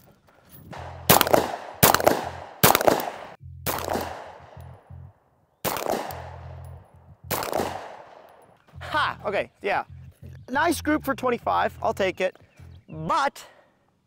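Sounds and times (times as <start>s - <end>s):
pistol shots with echo: 0.8s - 4.6s, 5.6s - 6.6s, 7.3s - 8.4s.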